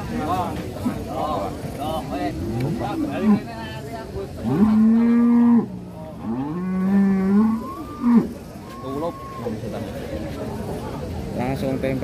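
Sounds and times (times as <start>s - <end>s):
cattle mooing: 4.4s - 8.4s.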